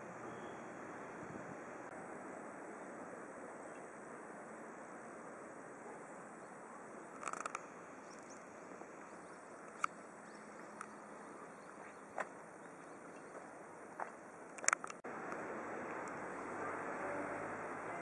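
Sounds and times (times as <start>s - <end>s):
chirping clicks: 7.1s - 8.4s, 9.1s - 11.1s, 14.5s - 15.4s.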